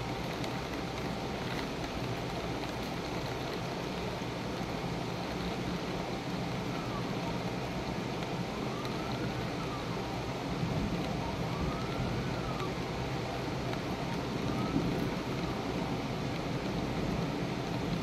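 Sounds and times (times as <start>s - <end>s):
steady rain: 0.0s - 18.0s
siren wailing faintly: 6.1s - 7.8s, 8.4s - 16.8s.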